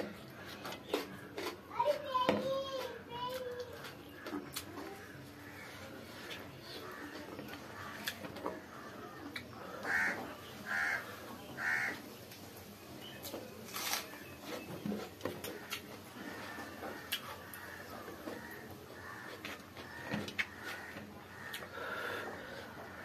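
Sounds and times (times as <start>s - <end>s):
crow cawing: 9.7s - 12.0s, 16.2s - 23.0s.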